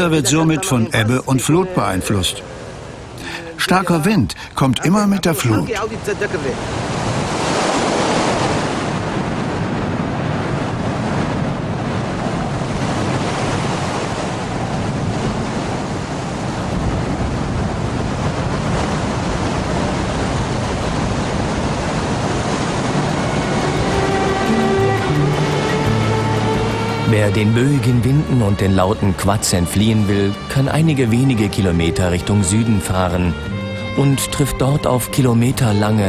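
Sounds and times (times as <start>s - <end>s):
breaking surf: 0.0s - 28.8s
wind buffeting microphone: 5.8s - 27.1s.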